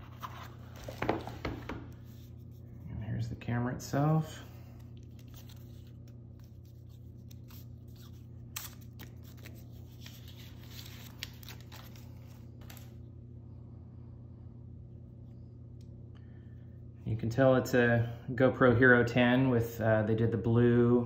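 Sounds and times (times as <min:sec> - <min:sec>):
steady low hum: 0:00.0 - 0:21.0
plastic wrap peeling: 0:04.9 - 0:13.0.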